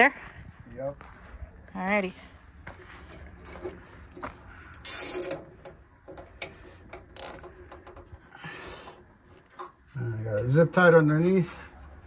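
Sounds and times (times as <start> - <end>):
handling clicks and knocks: 3.1 - 9.9.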